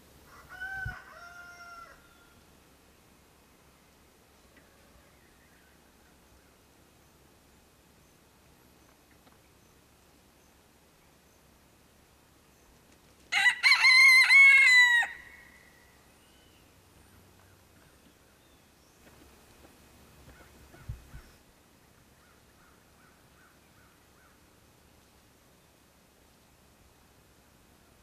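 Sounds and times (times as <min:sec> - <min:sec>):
rooster crowing: 0:00.3 - 0:02.4, 0:13.3 - 0:15.8.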